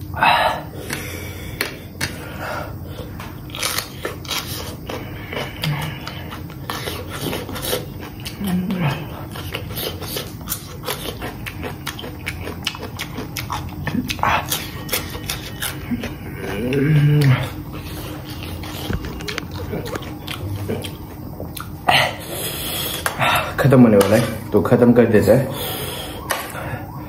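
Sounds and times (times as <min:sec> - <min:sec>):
person chewing noodles: 0:00.0 - 0:27.0
person humming low: 0:05.0 - 0:06.4, 0:08.3 - 0:09.3, 0:15.8 - 0:17.9.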